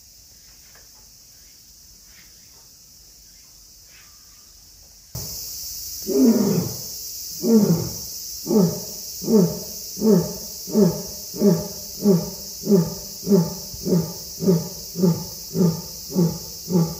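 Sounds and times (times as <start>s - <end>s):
insect chirps: 0.0s - 16.9s
lion roaring: 6.1s - 6.8s, 7.4s - 16.9s.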